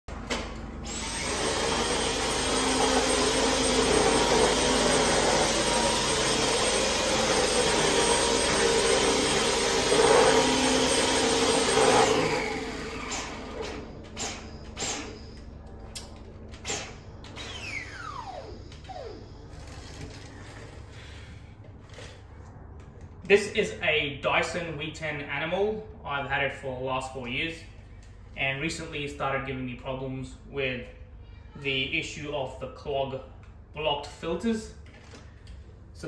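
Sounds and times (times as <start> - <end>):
vacuum cleaner whining: 0.1 - 21.3.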